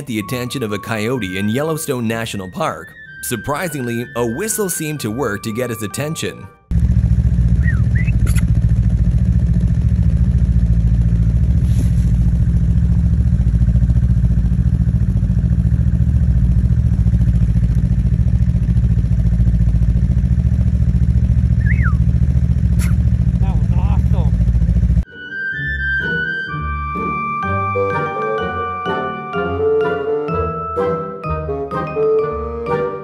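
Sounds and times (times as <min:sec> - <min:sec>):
snowmobile engine running: 0:00.1 - 0:25.0
person whistling: 0:07.6 - 0:08.2, 0:21.6 - 0:22.1.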